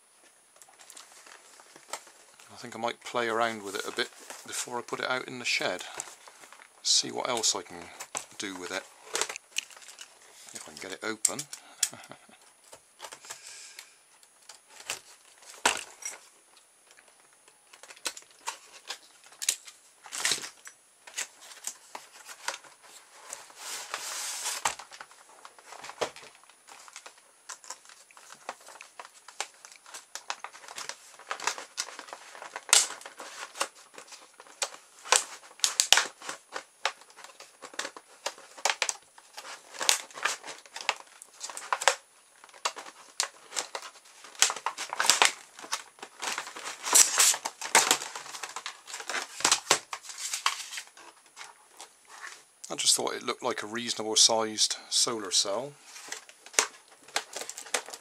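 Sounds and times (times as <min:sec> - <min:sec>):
plastic packaging crinkling: 0:00.6 - 0:53.1, 0:53.8 - 0:58.0
cardboard sleeve sliding off: 0:23.5 - 0:24.7.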